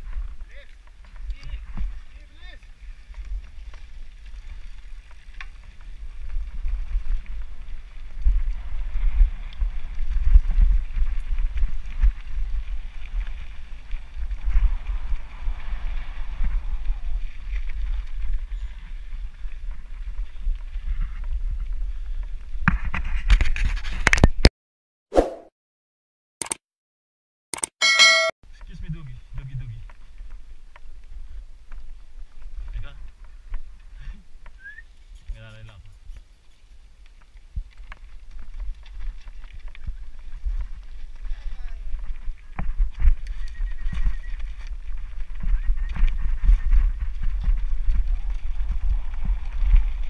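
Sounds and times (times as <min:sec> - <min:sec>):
wind buffeting: 0:00.0 - 0:22.7, 0:37.5 - 0:50.0
bike frame and trail rumble: 0:00.0 - 0:24.4, 0:28.5 - 0:50.0.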